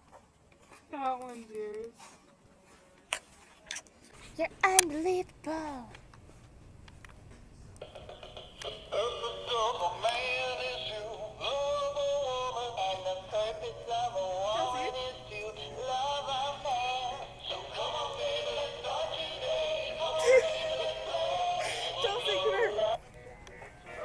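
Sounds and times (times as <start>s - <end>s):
toy playing recorded song: 7.8s - 23.0s.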